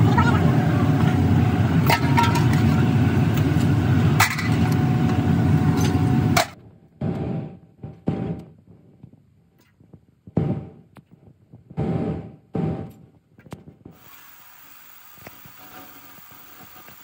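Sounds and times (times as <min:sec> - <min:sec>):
foundry machinery roar: 0:00.0 - 0:06.6
coal rattling in metal pan: 0:01.8 - 0:02.8
faint steady hum: 0:13.8 - 0:17.0.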